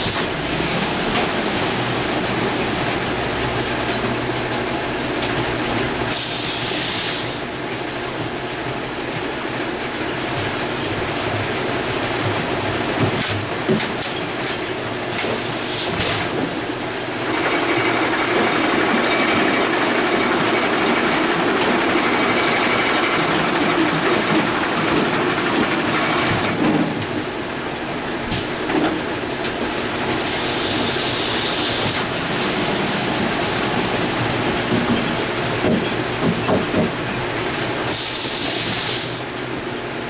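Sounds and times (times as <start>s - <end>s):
filling machine running: 17.1s - 26.6s.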